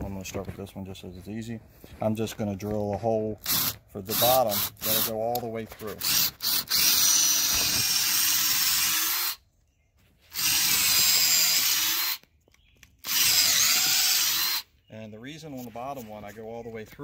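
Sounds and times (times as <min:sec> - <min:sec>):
cordless drill boring wood: 0:03.4 - 0:05.4, 0:06.0 - 0:09.4, 0:10.3 - 0:12.3, 0:13.0 - 0:14.7.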